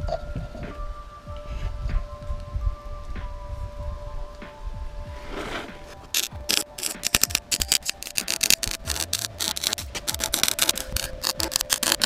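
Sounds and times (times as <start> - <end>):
welder crackling: 5.3 - 12.0.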